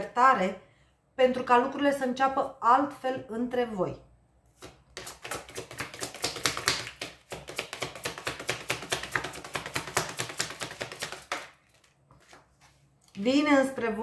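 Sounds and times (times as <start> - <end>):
cards being shuffled: 4.5 - 13.3.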